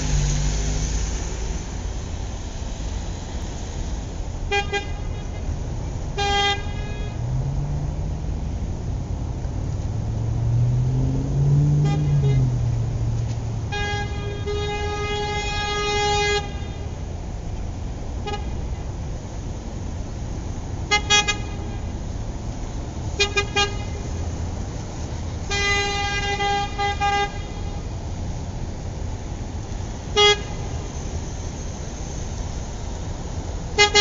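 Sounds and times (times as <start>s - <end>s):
low traffic rumble: 0.0s - 34.0s
car horns honking: 4.5s - 7.4s, 11.6s - 17.0s, 20.8s - 22.0s, 23.1s - 24.2s, 25.4s - 27.9s, 30.1s - 31.0s, 33.8s - 34.0s.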